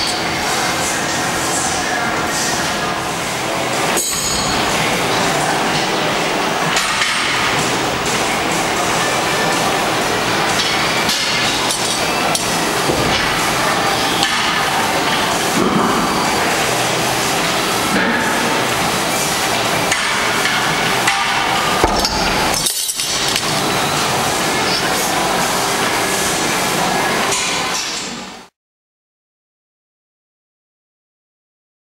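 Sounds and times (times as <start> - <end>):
gym background din: 3.5 - 26.3.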